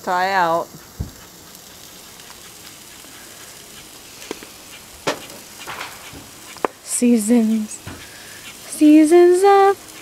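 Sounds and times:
fat popping and crackling: 0:00.0 - 0:08.9
steaks sizzling on a grill: 0:00.0 - 0:10.0.

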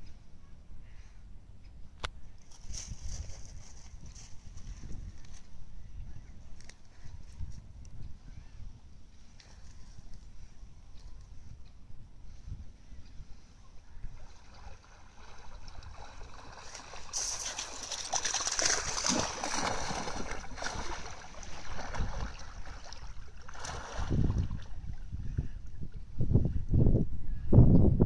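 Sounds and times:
dogs splashing in water: 0:14.4 - 0:24.2.

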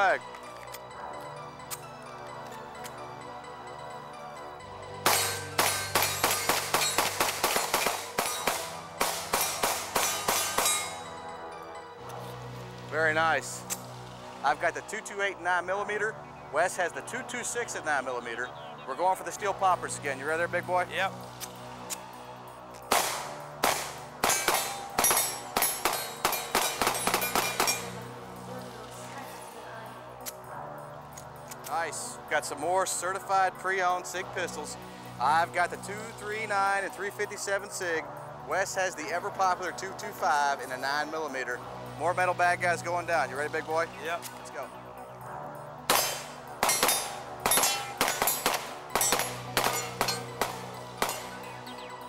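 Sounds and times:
background music: 0:00.0 - 0:52.0
steel targets clanging: 0:05.0 - 0:11.1, 0:23.0 - 0:28.0, 0:45.9 - 0:51.4
rapid pistol fire: 0:05.1 - 0:10.9, 0:22.9 - 0:27.9, 0:45.9 - 0:51.3.

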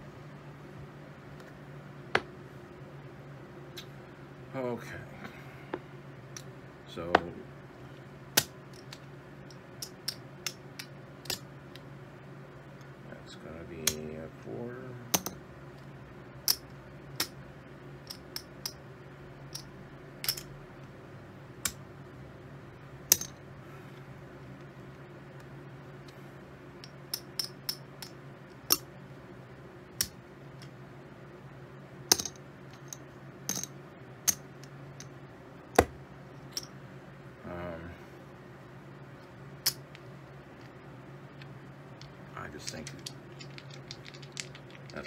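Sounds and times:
steady low hum: 0:00.0 - 0:45.0
poker chips clicking: 0:41.4 - 0:45.0.

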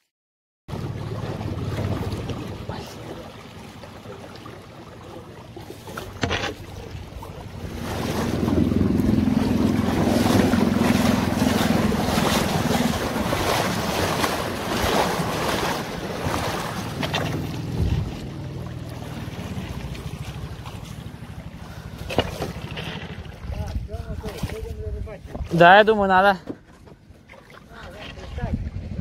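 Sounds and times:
river water rushing against boat: 0:00.7 - 0:29.0
wind buffeting microphone: 0:06.7 - 0:21.9, 0:22.5 - 0:26.1, 0:28.0 - 0:29.0.

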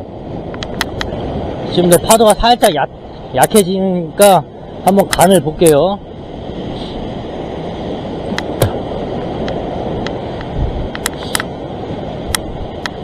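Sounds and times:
ocean surf breaking on rocks: 0:00.0 - 0:13.0.

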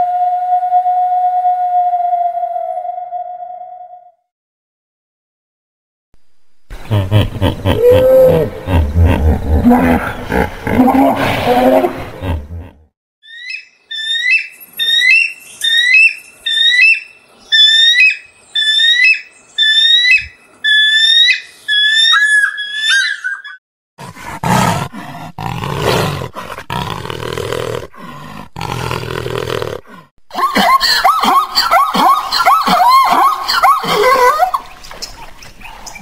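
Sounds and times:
big cat growling: 0:07.6 - 0:12.9, 0:24.0 - 0:30.1
eagle piping calls: 0:13.3 - 0:23.6.

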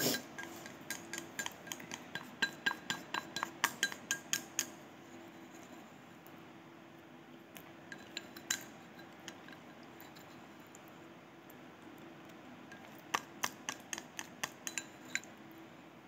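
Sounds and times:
chopsticks clicking on ceramic bowl: 0:00.4 - 0:04.8, 0:13.1 - 0:15.3.

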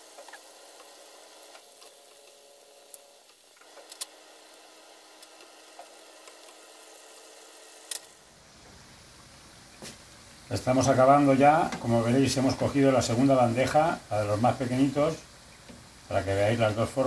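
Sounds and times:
dough sizzling in hot oil: 0:00.0 - 0:17.0.

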